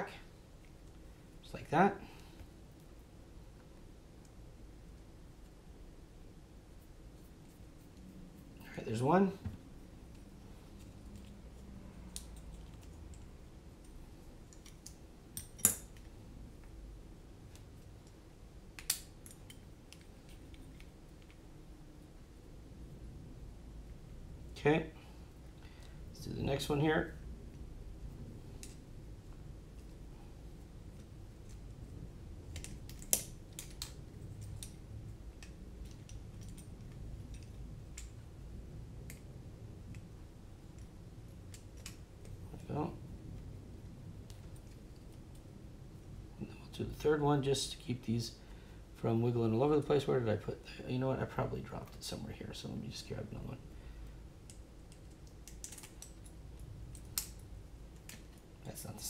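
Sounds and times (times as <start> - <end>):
small clicks of parts fitted: 54.4 - 58.4.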